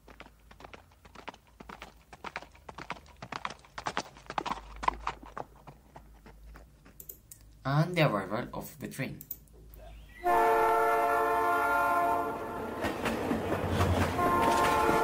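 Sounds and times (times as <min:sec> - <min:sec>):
horse hooves clip-clopping: 0:00.0 - 0:07.3.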